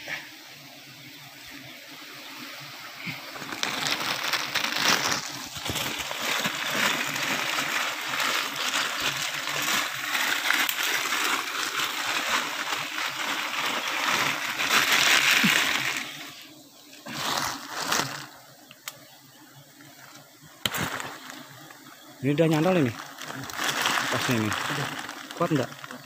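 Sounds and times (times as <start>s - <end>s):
plastic bag crinkling: 3.4s - 16.4s, 17.1s - 18.4s, 20.7s - 21.5s, 22.4s - 26.0s.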